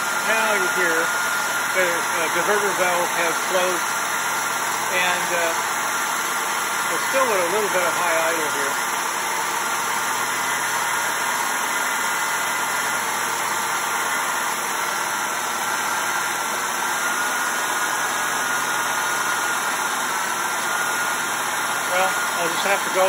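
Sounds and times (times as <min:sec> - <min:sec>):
high-pitched whine: 0:21.8 - 0:23.0.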